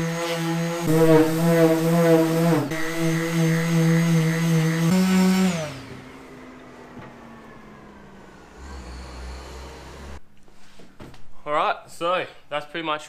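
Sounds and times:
electric sander motor whine: 0:00.0 - 0:10.2.

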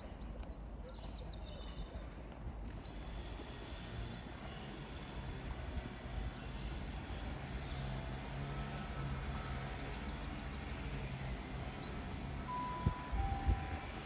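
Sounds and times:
faint high chirps: 0:12.5 - 0:14.0
public-address chime tone: 0:12.5 - 0:14.0.

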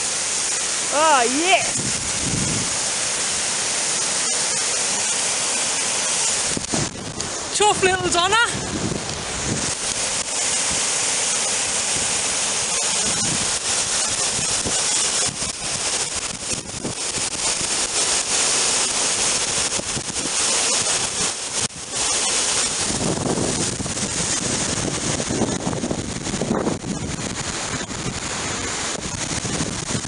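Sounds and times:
waterfall rushing: 0:00.0 - 0:30.0
wind buffeting microphone: 0:01.6 - 0:03.2, 0:06.4 - 0:10.9, 0:11.8 - 0:17.9, 0:19.3 - 0:30.0.

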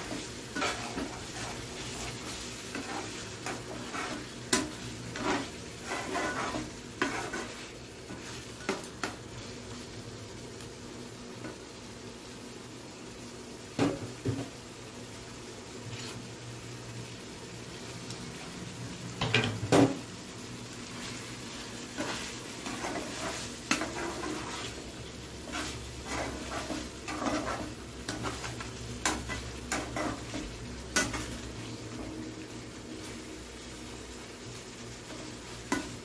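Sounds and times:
spatula scraping frying pan: 0:00.0 - 0:09.6, 0:15.8 - 0:16.3, 0:20.8 - 0:32.2, 0:34.9 - 0:36.0.

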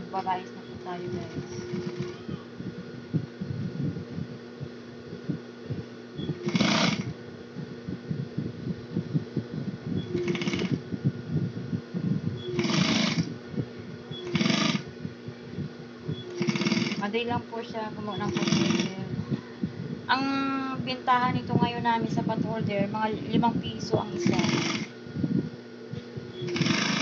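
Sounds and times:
sewing machine motor humming: 0:01.0 - 0:02.3, 0:06.2 - 0:07.1, 0:10.1 - 0:10.8, 0:12.5 - 0:13.3, 0:14.1 - 0:14.9, 0:16.1 - 0:17.1, 0:18.1 - 0:19.0, 0:24.0 - 0:24.9, 0:26.4 - 0:27.0.

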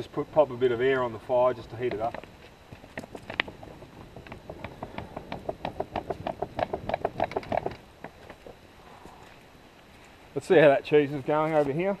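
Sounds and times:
hand air pump puffing: 0:03.4 - 0:07.8.

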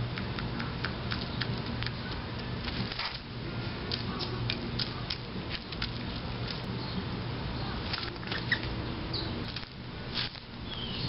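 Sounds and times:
birds pecking at birdseed: 0:00.0 - 0:07.0.

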